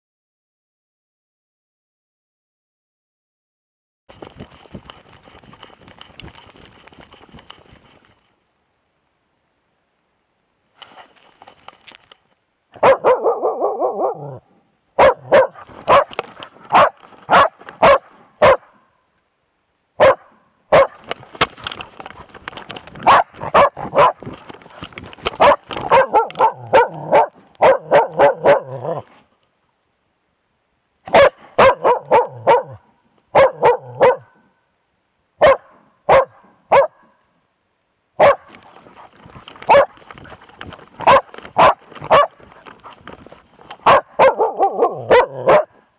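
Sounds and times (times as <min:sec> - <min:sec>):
dog barking sharply: 0:12.8 - 0:14.4, 0:15.0 - 0:18.8, 0:20.0 - 0:21.0, 0:23.0 - 0:24.2, 0:25.4 - 0:29.0, 0:31.1 - 0:34.4, 0:35.4 - 0:37.0, 0:38.2 - 0:38.5, 0:41.0 - 0:42.4, 0:43.8 - 0:45.8.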